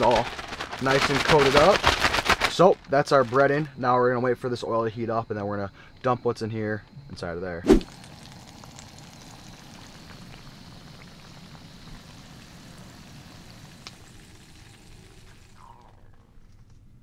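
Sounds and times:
fish sizzling in hot oil: 7.7 - 15.9.

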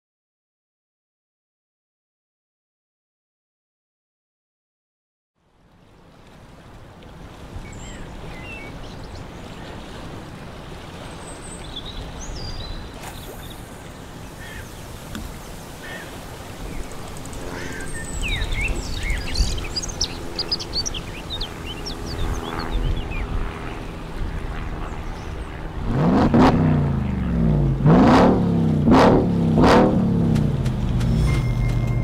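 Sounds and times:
water rushing: 5.4 - 32.0
wind: 5.4 - 32.0
birds chirping: 7.5 - 25.7
low steady drone: 10.8 - 32.0.

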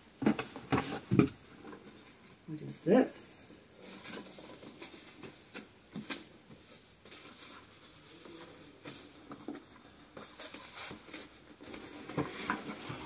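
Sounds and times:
paper and cardboard rustling: 3.8 - 13.0.

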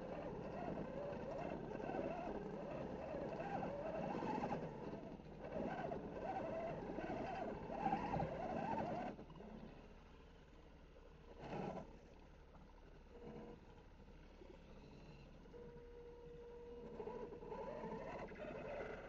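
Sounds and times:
rc car motor whining: 16.9 - 19.0.

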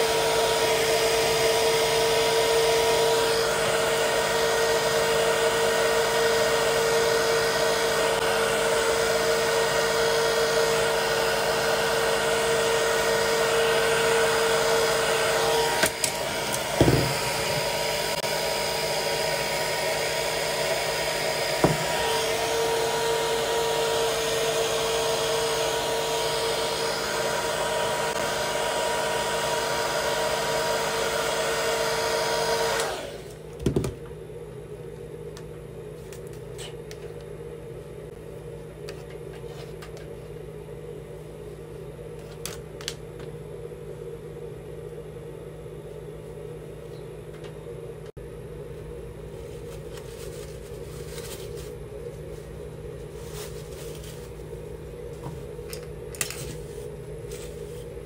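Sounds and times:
hair dryer blowing with whine: 0.0 - 33.6.

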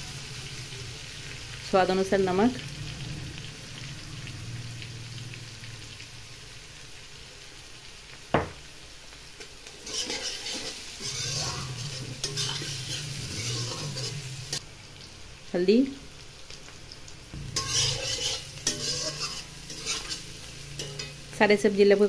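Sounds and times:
vegetables sizzling in oil: 0.0 - 22.0
metal spatula scraping pan: 9.4 - 14.6, 17.4 - 21.4
spatula tapping pan: 17.4 - 20.2.

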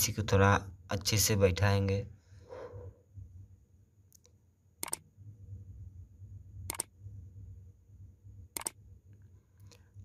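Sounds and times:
faint low hum: 0.0 - 10.0
mouse double click: 4.8 - 5.0, 6.7 - 6.9, 8.6 - 8.8.

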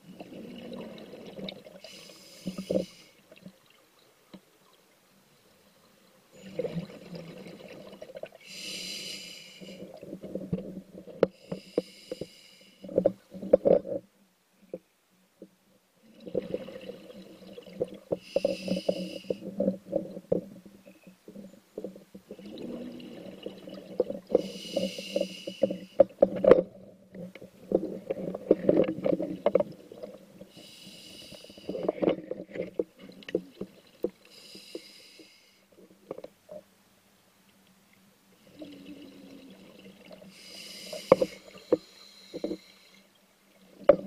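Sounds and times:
regulator hissing inhalation: 1.8 - 3.2, 8.5 - 9.8, 11.4 - 12.8, 18.2 - 19.4, 24.4 - 26.0, 30.5 - 31.8, 34.3 - 35.6, 40.3 - 43.1.

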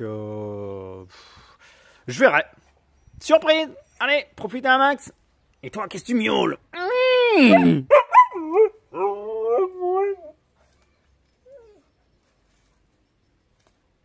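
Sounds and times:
pet animal whining: 11.4 - 12.1.

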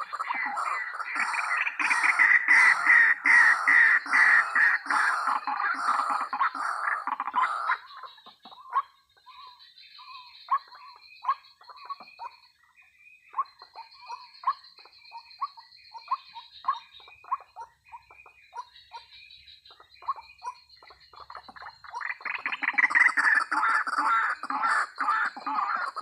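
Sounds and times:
waterhen calling: 0.0 - 9.5, 19.7 - 26.0.

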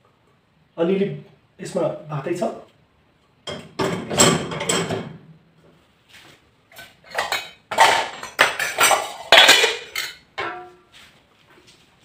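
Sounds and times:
metal cookware clattering on rack: 3.5 - 5.2, 6.7 - 10.8.

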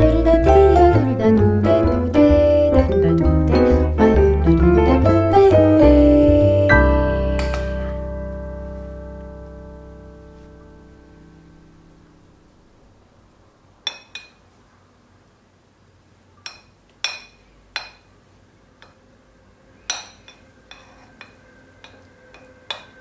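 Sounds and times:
metal spoon clinking on ceramic dish: 13.9 - 14.4, 16.4 - 18.1, 19.8 - 23.0.

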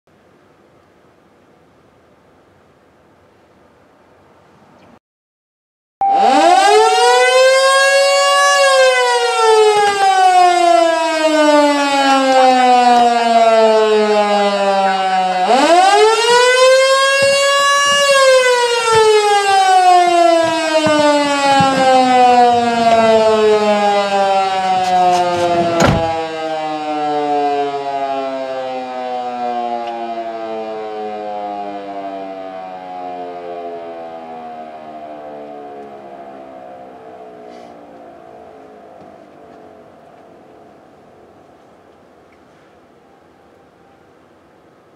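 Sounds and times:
electro-mechanical siren wailing: 6.0 - 41.3.

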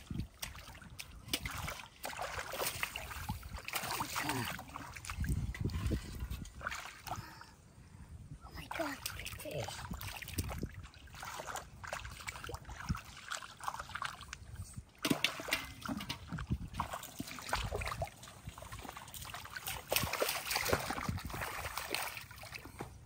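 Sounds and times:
muddy water splashing: 0.0 - 7.6, 8.4 - 23.0.

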